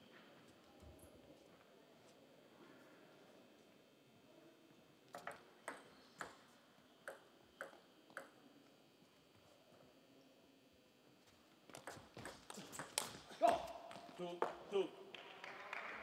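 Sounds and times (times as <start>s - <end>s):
table tennis ball bouncing: 5.1s - 6.4s, 7.0s - 8.4s, 11.7s - 13.2s.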